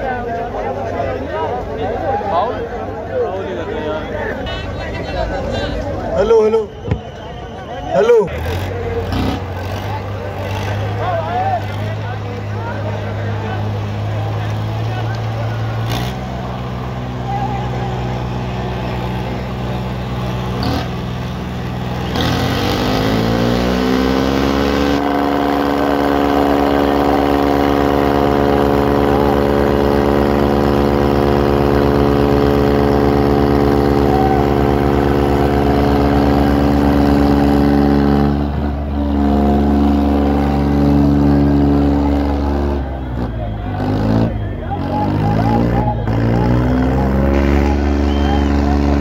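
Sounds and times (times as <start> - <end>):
tractor engine revving: 7.9 - 49.0.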